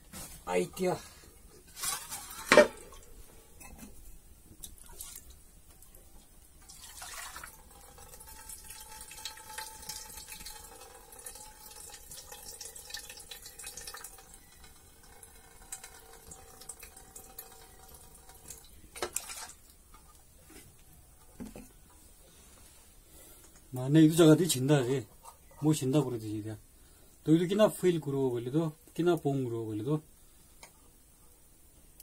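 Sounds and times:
metal can clattering: 1.8s - 3.0s
water trickling into bowl: 6.6s - 20.2s.

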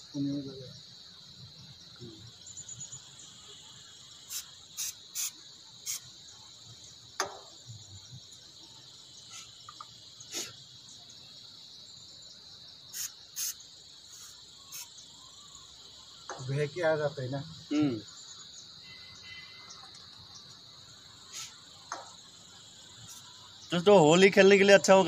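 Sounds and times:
insects chirring: 0.0s - 25.0s
short sharp bursts: 4.2s - 6.0s, 12.9s - 14.9s.

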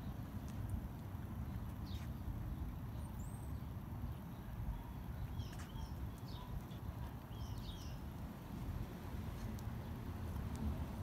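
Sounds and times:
birds chirping: 1.4s - 8.2s.

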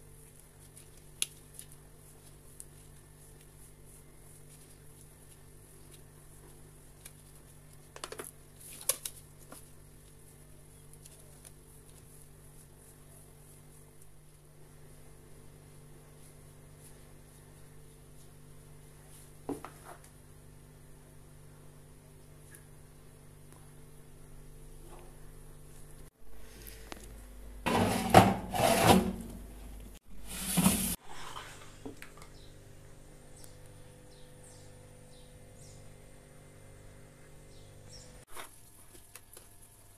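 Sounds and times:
low steady hum: 0.0s - 30.0s, 31.0s - 39.9s
dough scraping on metal grater: 27.7s - 29.2s
metal baking tray scraping: 27.7s - 29.4s, 30.2s - 31.8s.

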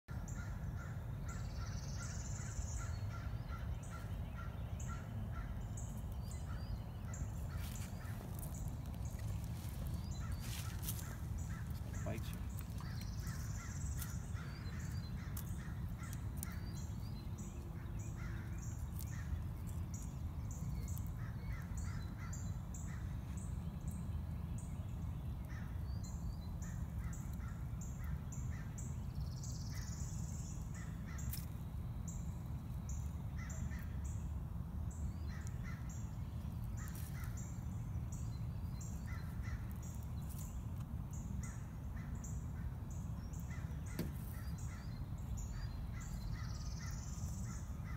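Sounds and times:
birds calling: 0.1s - 47.9s
steady low rumble: 0.1s - 47.9s.

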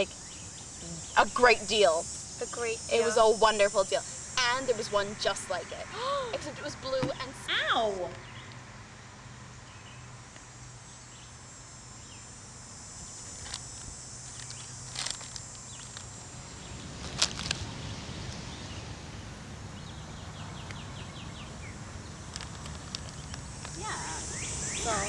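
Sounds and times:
high insect buzz: 0.0s - 25.0s
chip bag crinkling: 13.2s - 16.2s, 17.0s - 17.6s, 22.3s - 23.8s.

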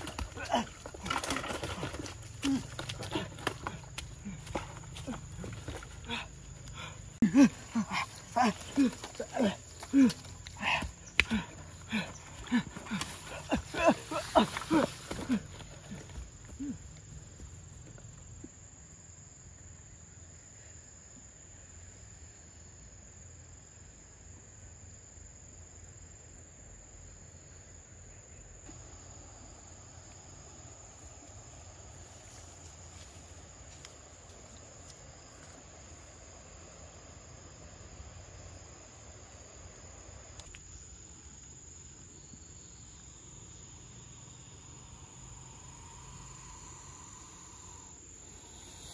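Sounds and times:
high-pitched insect drone: 42.2s - 48.9s.

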